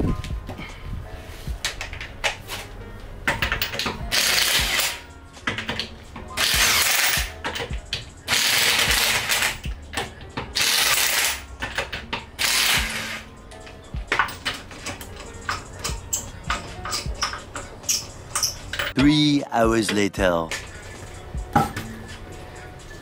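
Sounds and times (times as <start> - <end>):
electric impact wrench hammering: 3.4 - 5.8, 6.4 - 9.8, 10.6 - 13.2.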